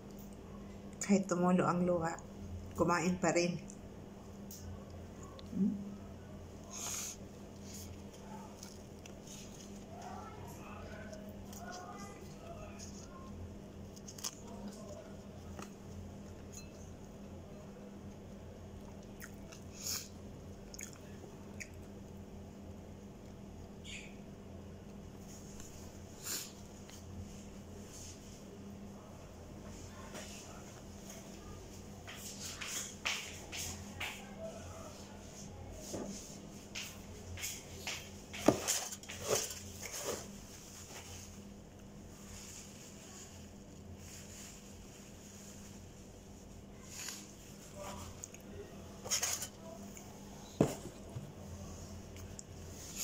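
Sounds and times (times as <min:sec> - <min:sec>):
steady low hum: 0:00.0 - 0:53.0
fingers rustling on a plate: 0:06.6 - 0:17.3
chewing: 0:06.7 - 0:16.7, 0:18.8 - 0:22.0
knocks and rustles of handling: 0:35.8 - 0:41.6, 0:49.0 - 0:53.0.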